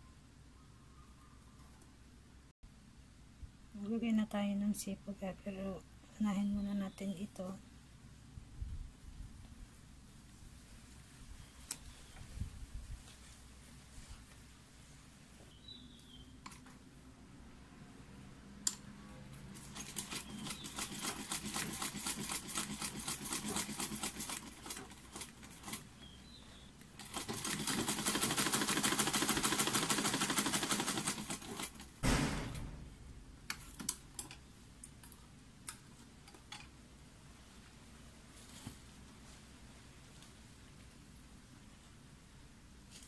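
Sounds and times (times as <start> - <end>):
sewing machine stitching: 19.6 - 25.9, 27.0 - 31.9
sewing machine heavy thump: 32.0 - 33.1.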